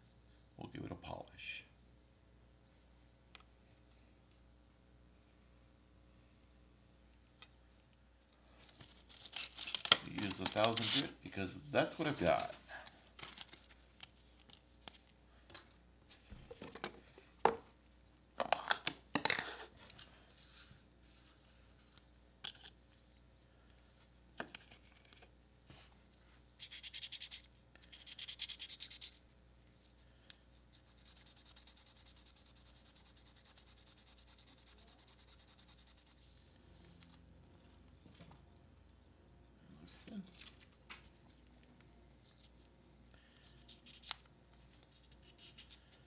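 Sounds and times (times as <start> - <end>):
sandpaper rubbing on plastic: 26.6 - 29.2, 30.9 - 36.2.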